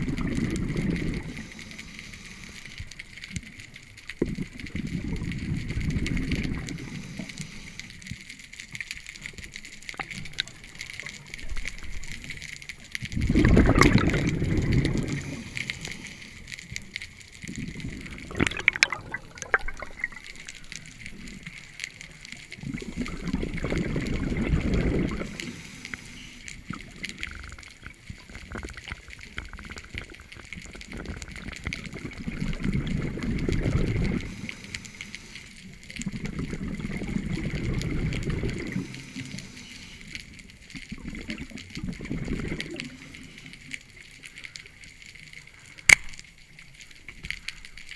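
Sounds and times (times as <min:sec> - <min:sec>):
rushing bubbles: 0:00.0 - 0:02.3, 0:03.3 - 0:07.6, 0:09.2 - 0:34.9, 0:35.7 - 0:39.6, 0:40.5 - 0:43.4
diver breathing through regulator: 0:01.1 - 0:02.9, 0:06.6 - 0:08.0, 0:14.6 - 0:16.7, 0:24.7 - 0:26.5, 0:34.1 - 0:35.7.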